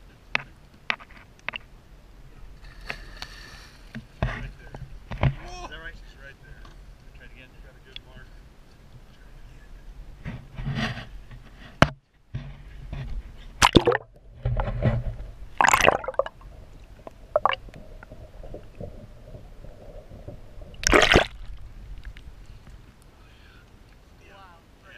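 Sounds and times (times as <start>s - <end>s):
water splashing and sloshing: 12.7s - 23.0s.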